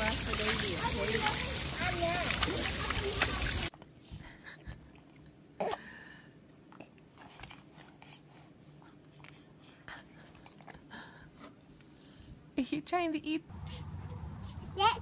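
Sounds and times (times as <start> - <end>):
water splashing: 0.0 - 3.7.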